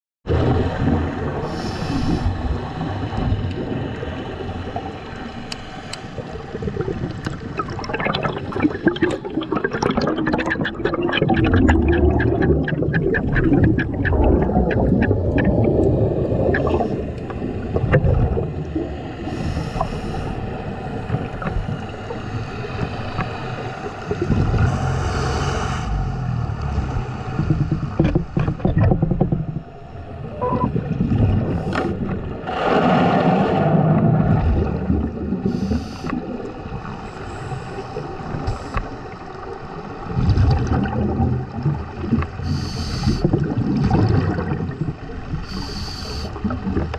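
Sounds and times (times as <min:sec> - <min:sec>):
gurgling exhaust bubbles: 0:00.3 - 0:05.5, 0:06.1 - 0:46.9
low underwater rumble: 0:00.3 - 0:46.9
hissing inhalations: 0:01.5 - 0:02.4, 0:35.4 - 0:36.2, 0:42.4 - 0:43.3, 0:45.4 - 0:46.4.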